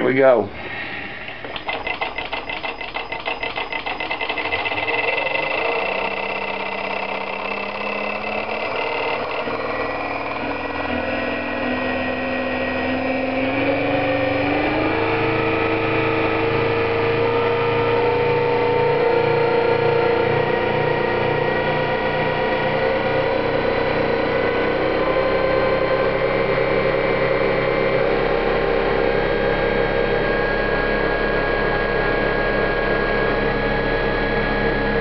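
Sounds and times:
mechanical hum and whine: 0:00.0 - 0:35.0
motor fast ticking: 0:01.1 - 0:11.1.

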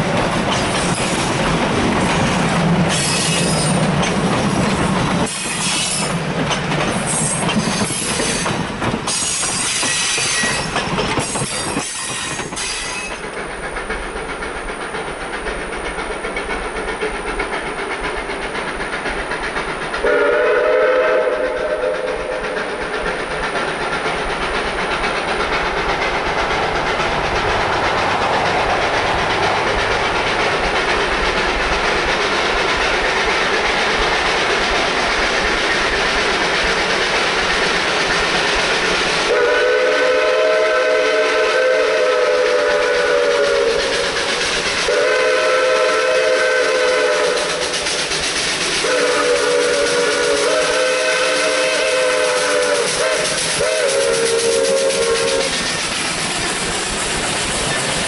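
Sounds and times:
wheels clicking over rail joints: 0:00.0 - 0:20.3, 0:21.4 - 0:39.4, 0:42.4 - 0:45.0, 0:46.7 - 0:58.0
train cars rolling past: 0:00.0 - 0:58.0
distant train horn: 0:20.0 - 0:22.6, 0:39.2 - 0:44.1, 0:44.8 - 0:47.7, 0:48.8 - 0:55.6.

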